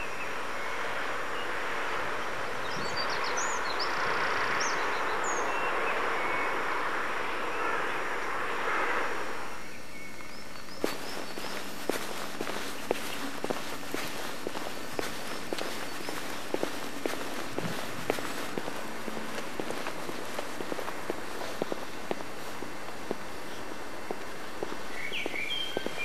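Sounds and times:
distant town noise hiss: 0.0s - 26.0s
footsteps on stone paving: 10.2s - 26.0s
high bird chirps: 24.9s - 26.0s.

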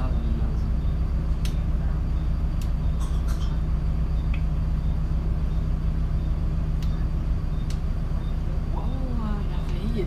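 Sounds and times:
bus engine idling: 0.0s - 10.0s
faint sharp clicks: 1.4s - 1.6s, 6.8s - 7.0s, 7.6s - 7.8s.

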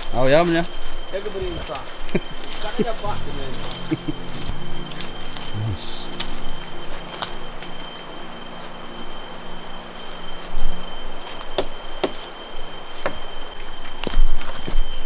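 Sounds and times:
insects droning: 0.0s - 15.0s
footsteps snapping twigs: 0.9s - 8.7s.

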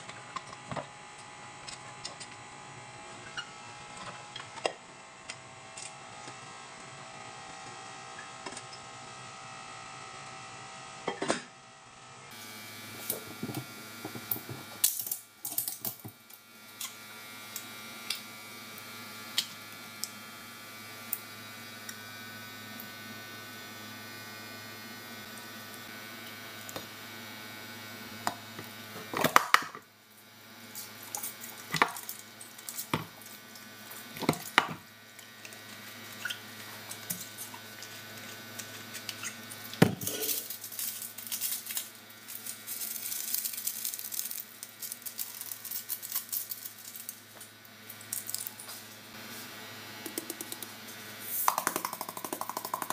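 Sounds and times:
steady electrical hum: 0.0s - 52.9s
wrapper crinkling: 40.0s - 47.4s.

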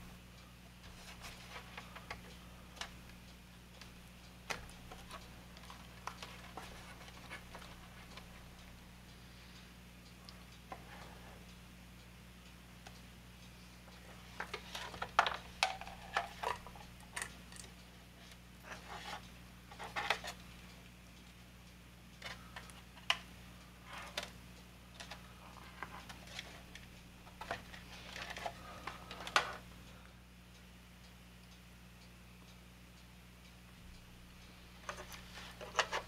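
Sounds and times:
low steady hum: 0.0s - 36.0s
clicks taps and rustles of handling: 3.8s - 8.8s, 14.0s - 20.4s, 23.9s - 24.4s, 25.0s - 29.6s, 34.8s - 36.0s.

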